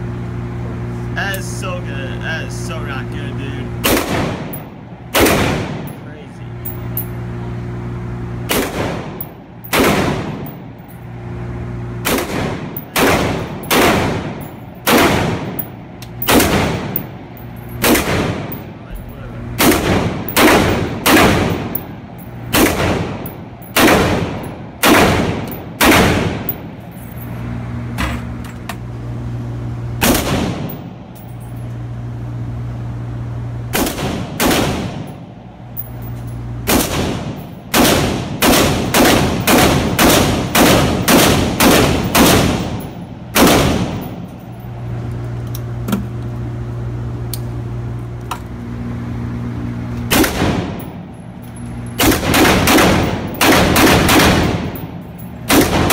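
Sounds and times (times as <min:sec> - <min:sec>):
steady low hum: 0:00.0 - 0:55.9
rifle shots echoing indoors: 0:03.8 - 0:06.0, 0:08.5 - 0:10.7, 0:12.0 - 0:18.7, 0:19.6 - 0:26.7, 0:30.0 - 0:30.9, 0:33.7 - 0:35.3, 0:36.6 - 0:44.3, 0:50.1 - 0:50.9, 0:52.0 - 0:55.9.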